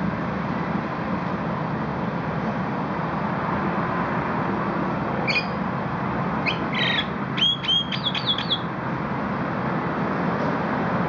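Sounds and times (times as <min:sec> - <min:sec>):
bird whistled calls: 0:05.3 - 0:05.6, 0:06.4 - 0:08.7.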